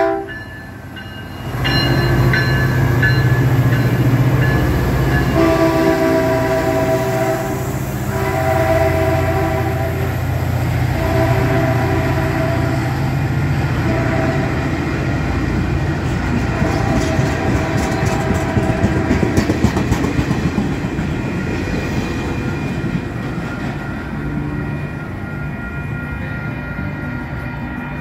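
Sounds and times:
train wheels clattering over rails: 15.0s - 24.4s.

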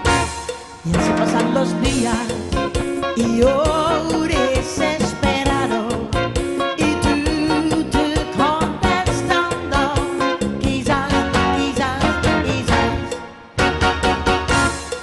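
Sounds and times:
steady drum beat: 0.0s - 3.8s
band backing: 0.0s - 15.0s
woman singing pop song: 0.8s - 13.2s.

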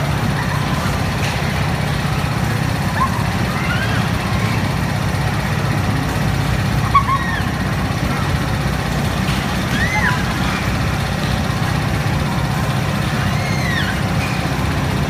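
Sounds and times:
ride machinery droning: 0.0s - 15.0s.

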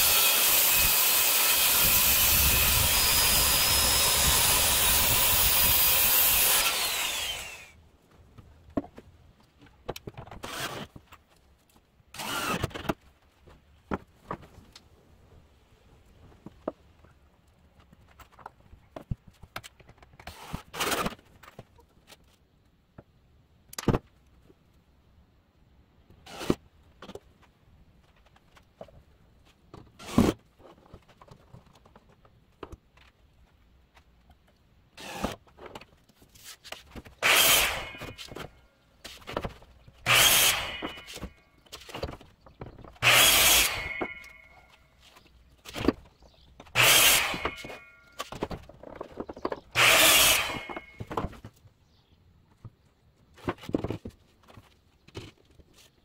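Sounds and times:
miter saw cutting wood: 0.0s - 7.8s, 12.2s - 12.7s, 37.2s - 38.5s, 40.0s - 41.3s, 43.0s - 44.8s, 46.7s - 48.0s, 49.7s - 51.2s.

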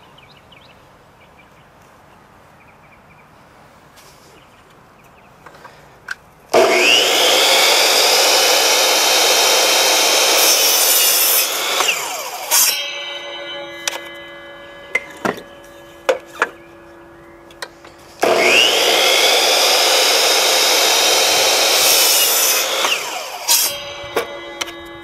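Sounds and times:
miter saw motor whining: 6.6s - 25.0s
saw blade cutting wood: 6.6s - 25.0s.

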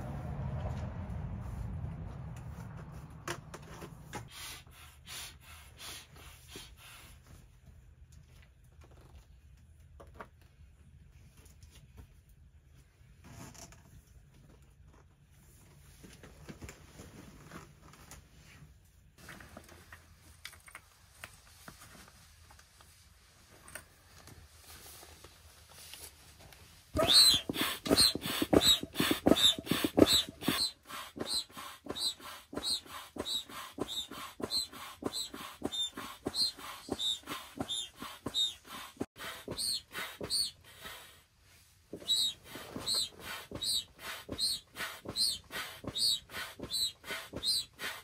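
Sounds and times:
foot pump wheezing puffs: 4.2s - 7.5s, 27.0s - 41.3s, 41.9s - 48.0s.

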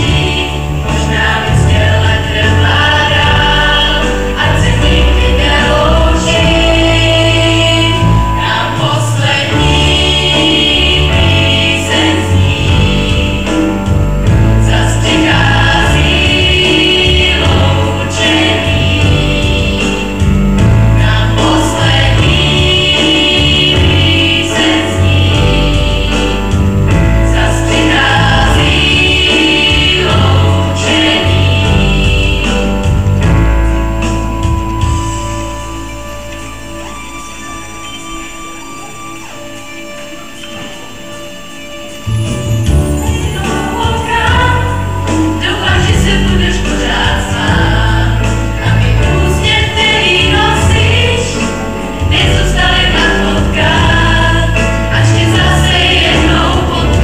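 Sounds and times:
choir singing: 0.0s - 57.0s
sustained low accompanying notes: 0.0s - 57.0s.

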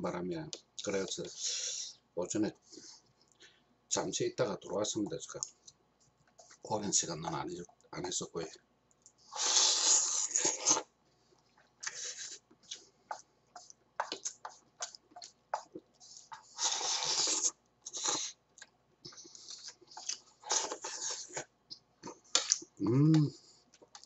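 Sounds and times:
slurping noodles: 16.1s - 18.4s.

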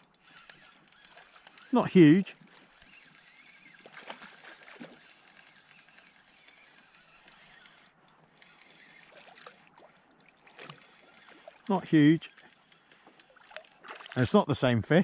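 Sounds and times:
water lapping against hull: 2.3s - 7.8s, 8.5s - 14.3s.

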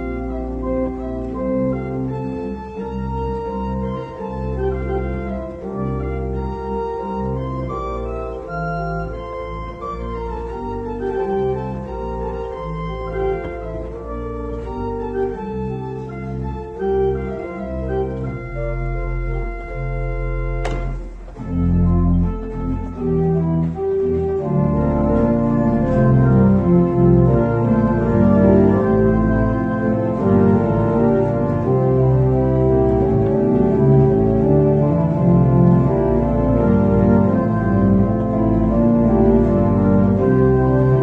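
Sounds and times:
church organ chords: 0.0s - 41.0s
sharp click: 20.6s - 21.1s.

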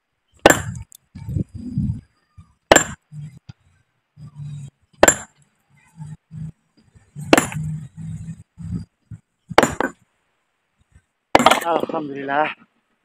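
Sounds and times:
hammer striking stone: 0.4s - 0.8s, 2.7s - 3.0s, 5.0s - 5.4s, 7.3s - 7.7s, 9.5s - 10.0s, 11.4s - 11.8s.

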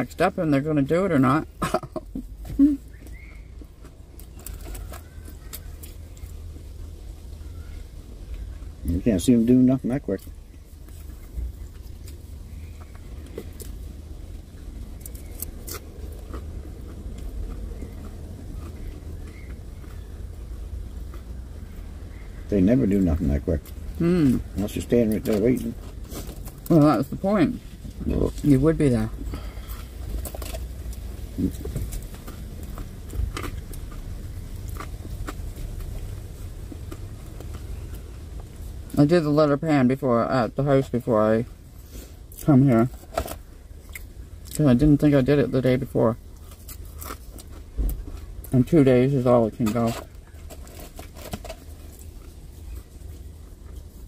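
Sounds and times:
low rumble inside vehicle cab: 0.0s - 54.0s.

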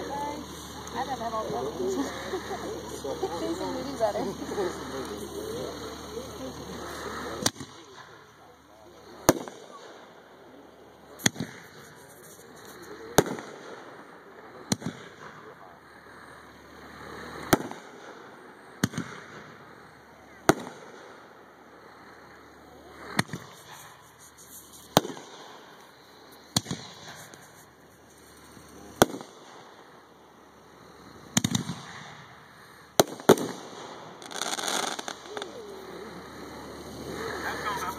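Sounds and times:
firework shells booming: 0.3s - 8.4s, 9.0s - 16.3s, 16.9s - 22.1s, 22.9s - 37.9s
noisy rush: 21.4s - 37.9s.

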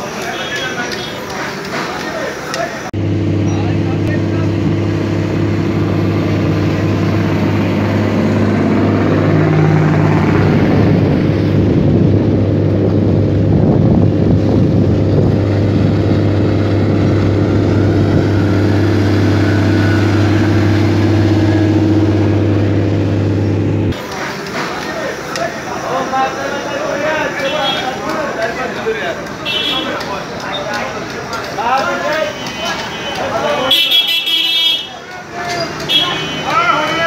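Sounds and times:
boat engine humming: 2.9s - 24.0s.

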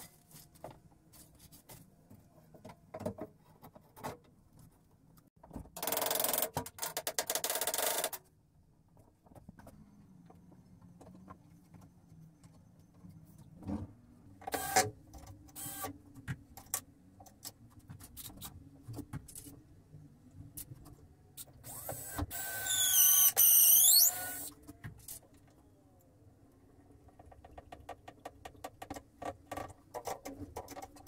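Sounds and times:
loud high squeaking: 22.6s - 24.5s.

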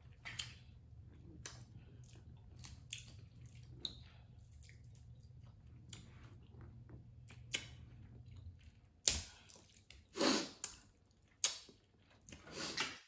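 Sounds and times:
smacking eating sound: 0.0s - 13.0s.

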